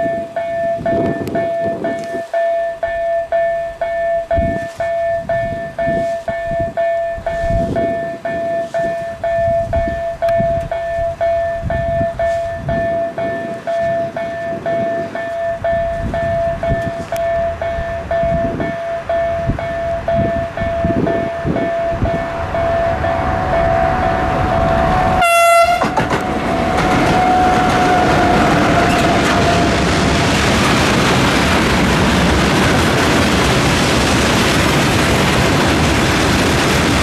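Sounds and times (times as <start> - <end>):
level crossing warning bell ringing: 0.0 - 30.7
low rumble: 15.5 - 25.2.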